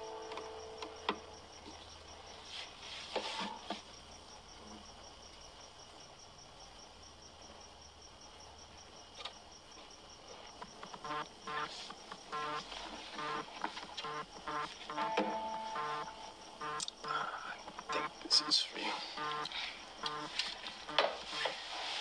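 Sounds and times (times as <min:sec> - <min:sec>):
crickets chirping: 0:00.0 - 0:22.0
acoustic guitar picking: 0:14.0 - 0:17.2.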